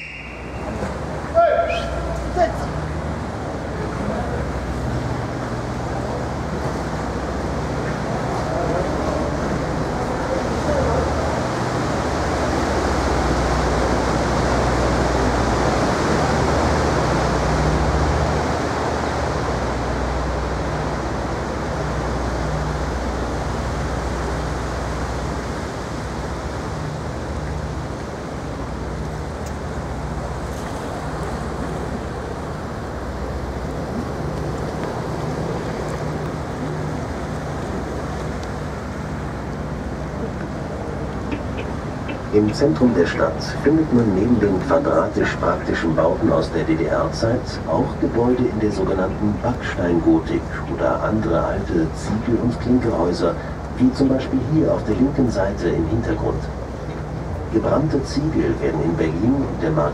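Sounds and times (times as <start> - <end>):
boat engine drone: 0.0 - 59.9
water rushing along hull: 0.0 - 59.9.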